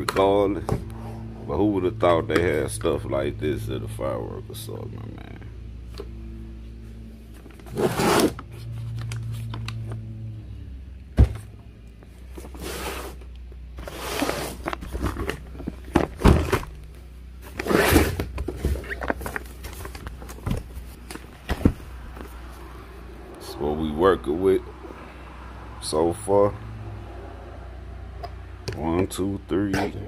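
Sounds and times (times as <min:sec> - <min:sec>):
low steady hum: 0:00.0 - 0:30.0
cardboard scraping and rustling: 0:07.3 - 0:09.6, 0:12.3 - 0:16.8, 0:17.4 - 0:22.6
boxes thudding down: 0:14.5 - 0:16.8.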